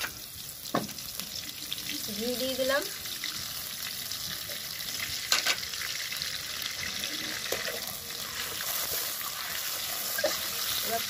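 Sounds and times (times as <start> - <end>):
hot oil sizzling: 0.0 - 11.0
spatula stirring fat: 6.7 - 11.0.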